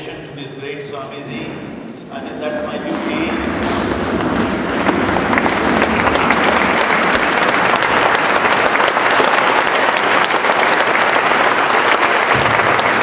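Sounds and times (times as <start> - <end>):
audience applause: 2.6 - 13.0.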